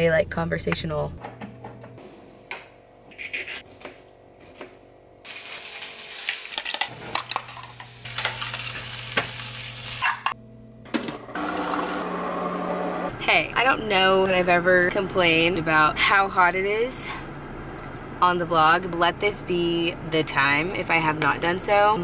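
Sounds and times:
eggs sizzling in frying pan: 5.3s - 10.4s.

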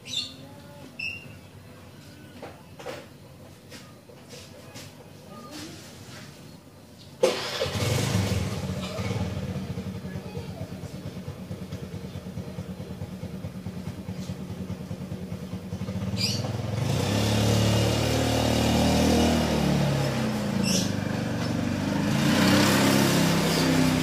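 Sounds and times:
small engine puttering: 7.2s - 24.0s.

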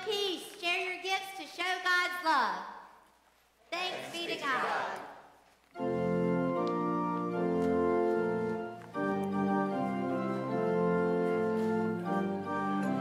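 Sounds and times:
organ sustained chords: 5.8s - 13.0s.

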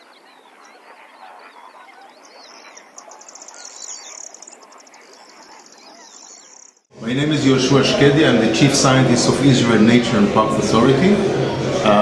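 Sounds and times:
high rapid bird trill: 0.0s - 6.9s
waterbirds calling: 0.0s - 6.9s.

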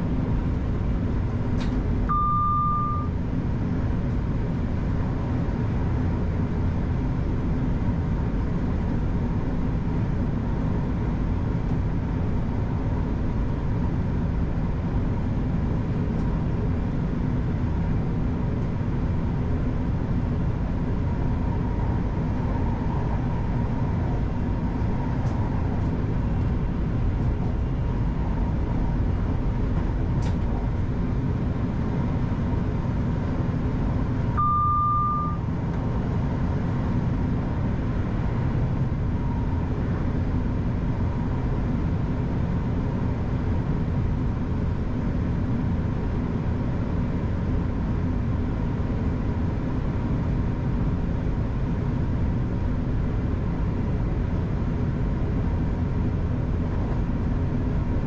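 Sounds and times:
train rumble: 0.0s - 58.0s
short high beep: 2.1s - 3.1s, 34.4s - 35.5s.

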